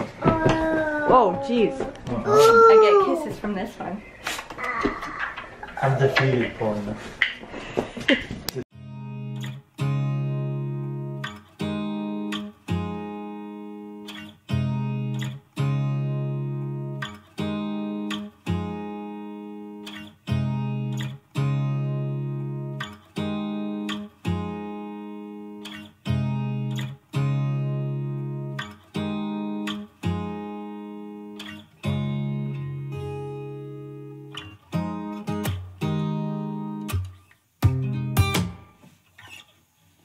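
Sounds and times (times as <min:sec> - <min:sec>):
guitar strumming chords: 0:08.7 - 0:39.4.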